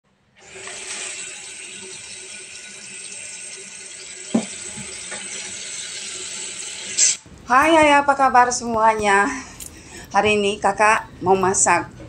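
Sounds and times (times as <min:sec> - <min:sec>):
tap water running into sink: 0:00.4 - 0:07.2
sharp knock: 0:04.3 - 0:04.6.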